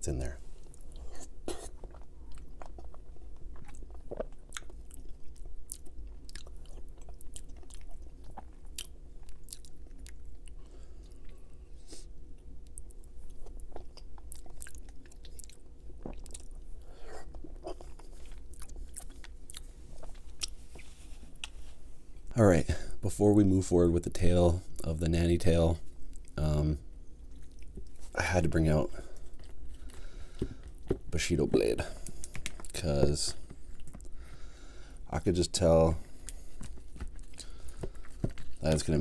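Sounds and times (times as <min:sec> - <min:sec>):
close chewing food: 0:00.6 - 0:11.4, 0:12.4 - 0:20.8.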